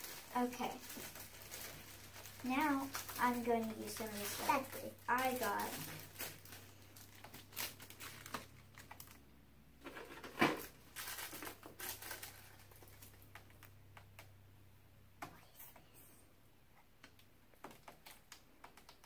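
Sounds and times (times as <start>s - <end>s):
plastic bags crinkling: 0.0s - 9.2s, 9.8s - 13.7s.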